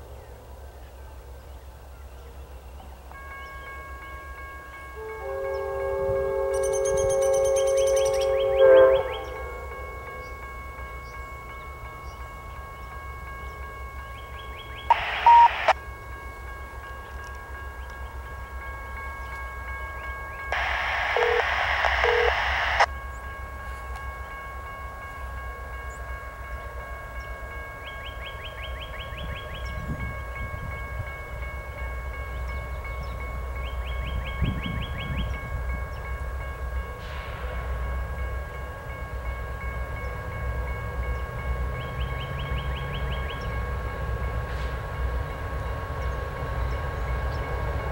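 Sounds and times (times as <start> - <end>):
train rumble: 0.0 - 47.9
radio scanner static: 14.9 - 15.8, 20.5 - 22.9.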